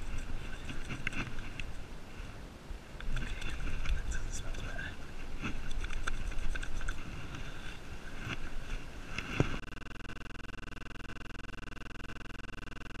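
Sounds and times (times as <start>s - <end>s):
wind rumbling on microphone: 0.0s - 9.6s
rapidly pulsing buzz: 9.5s - 13.0s.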